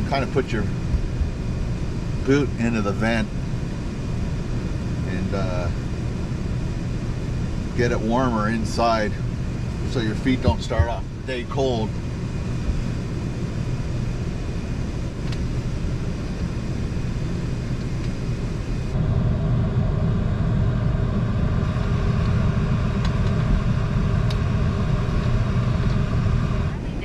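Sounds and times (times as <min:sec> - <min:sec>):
heater air rushing: 0:00.0 - 0:27.0
multi-tone hum: 0:00.0 - 0:27.0
van engine idling: 0:00.0 - 0:27.0.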